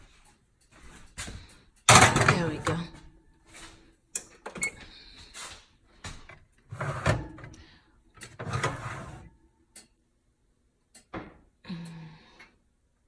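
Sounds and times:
metal oven rack clattering: 1.9 - 2.8.

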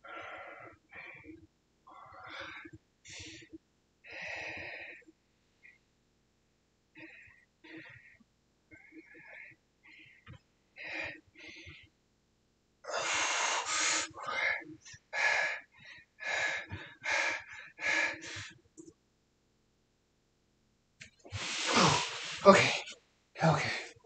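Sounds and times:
man breathing hard: 12.9 - 18.6, 21.3 - 23.9
forceful gasps and exhales: 21.3 - 23.9.

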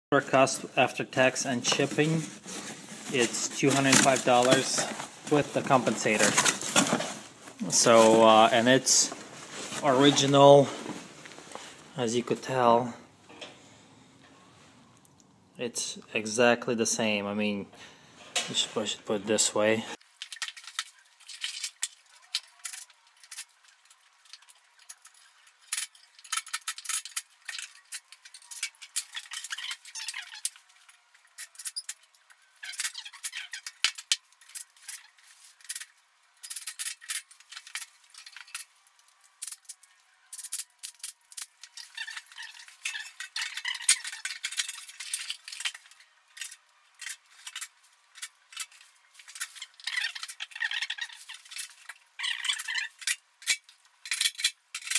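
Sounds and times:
metal parts clinking and rattling: 20.1 - 54.9.

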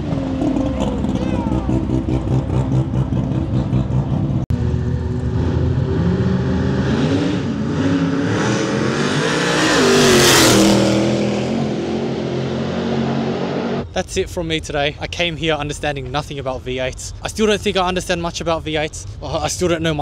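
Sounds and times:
car engines revving hard: 0.0 - 14.3.

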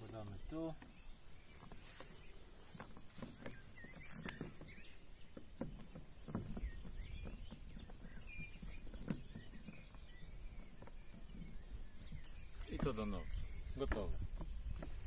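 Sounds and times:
plastic leash clicking and rustling: 2.7 - 4.9.

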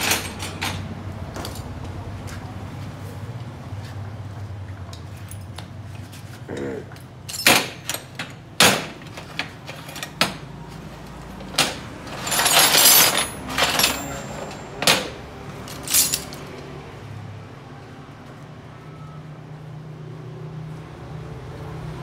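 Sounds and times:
metal tools clanking: 0.0 - 1.7, 6.5 - 10.5, 11.4 - 16.6
tools rattling together: 0.0 - 1.7, 7.0 - 10.5, 11.4 - 16.6.

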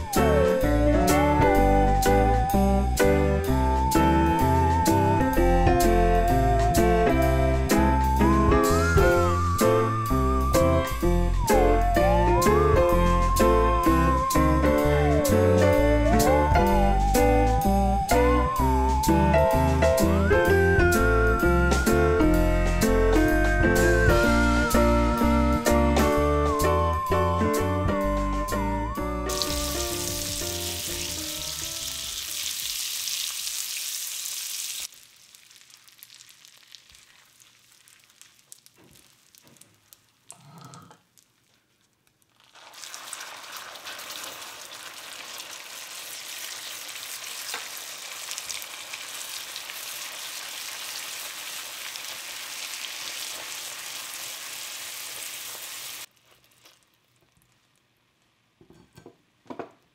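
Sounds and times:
butter sizzling in a pan: 29.3 - 40.3, 42.3 - 58.4
caramel sizzling and bubbling: 29.3 - 59.1.

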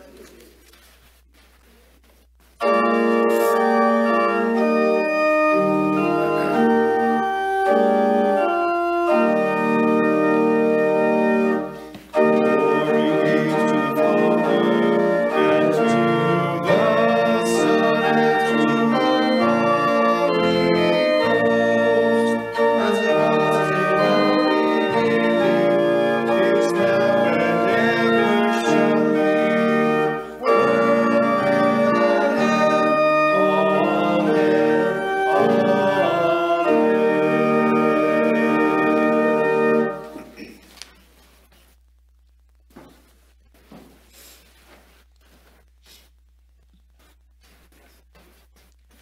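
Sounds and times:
church organ chords: 2.6 - 40.4.

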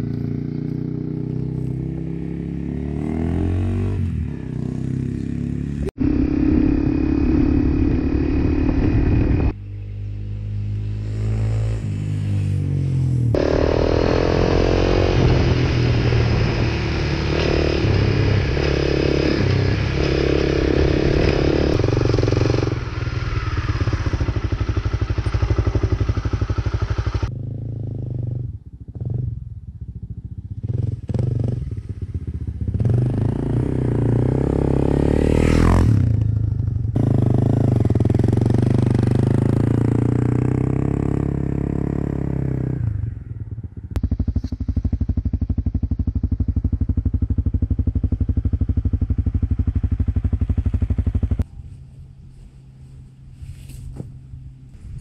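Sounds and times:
dirt bike engine revving: 0.0 - 9.6, 10.5 - 27.9, 30.6 - 36.2
bike passing whoosh: 4.0 - 27.3.

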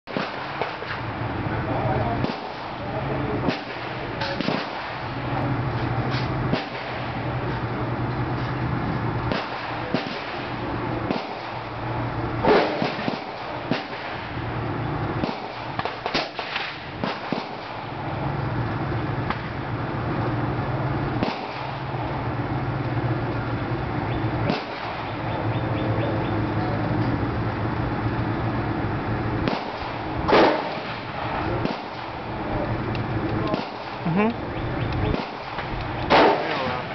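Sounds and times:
gunshots: 0.1 - 1.1, 2.2 - 2.8, 3.4 - 5.2, 6.5 - 7.4, 9.3 - 11.8, 12.4 - 14.4, 15.2 - 18.0, 21.2 - 21.9, 24.4 - 25.2, 29.4 - 32.2, 33.4 - 34.0, 35.0 - 36.9
steady low hum: 0.1 - 36.9.

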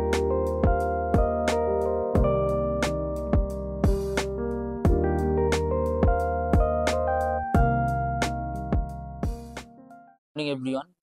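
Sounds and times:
keyboard chords with bass and beat: 0.0 - 10.1.

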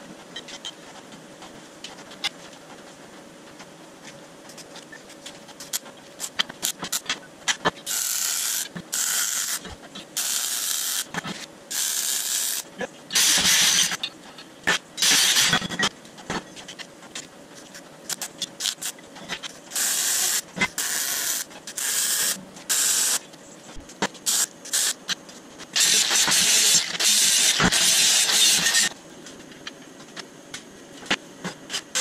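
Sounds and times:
welding arc crackling hiss: 5.6 - 14.1, 14.7 - 15.7, 18.1 - 29.0, 30.5 - 32.0.

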